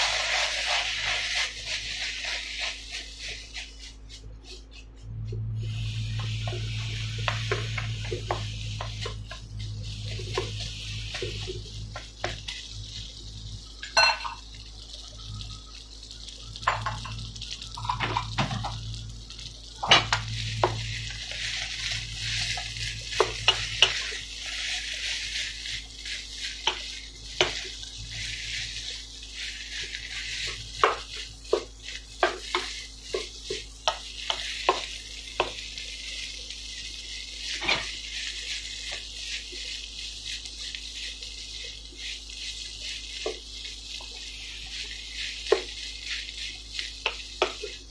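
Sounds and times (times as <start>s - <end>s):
rice sizzling in frying pan: 0.0s - 47.9s
spatula scraping and knocking pan: 6.2s - 12.7s, 19.8s - 35.9s, 40.6s - 47.9s.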